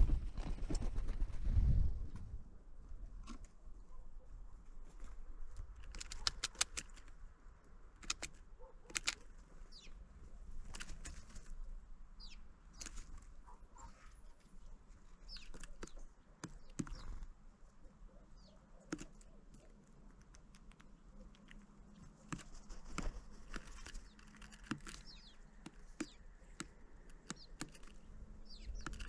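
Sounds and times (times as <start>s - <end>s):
birds tapping and clicking: 5.0s - 7.2s, 7.9s - 10.0s, 12.2s - 13.9s, 15.0s - 17.5s, 18.2s - 29.0s.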